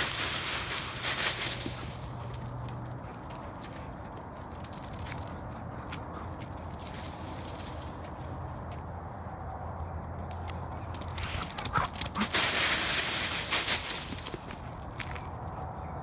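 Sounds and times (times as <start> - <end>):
dog running through dry leaves: 0.0 - 2.6, 6.6 - 8.4, 10.8 - 15.3.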